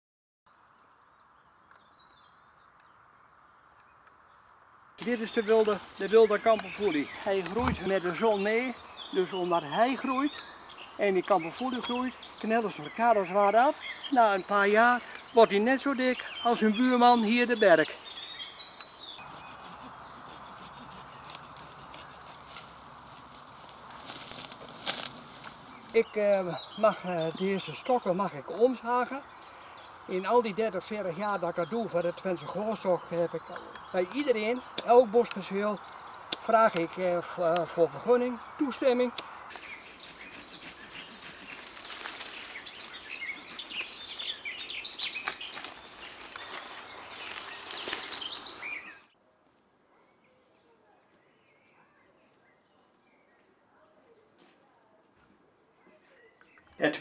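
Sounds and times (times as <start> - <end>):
bird chirping: 0.5 - 49.2
wood cracking: 5.0 - 8.2, 21.3 - 26.0, 45.0 - 48.3
twigs and leaves rustling: 5.0 - 17.4, 18.8 - 29.6, 32.2 - 49.0.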